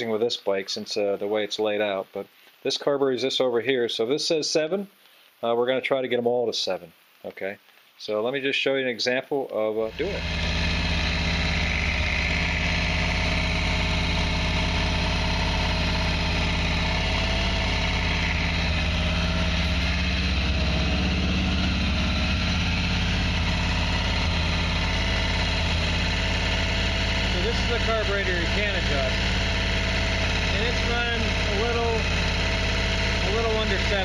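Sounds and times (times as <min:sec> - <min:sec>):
motorcycle engine idling: 0:09.9 - 0:34.0.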